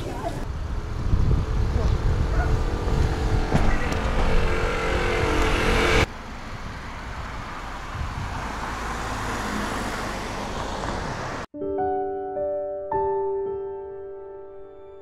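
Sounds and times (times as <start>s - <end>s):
car engine and road rumble: 0.0s - 11.5s.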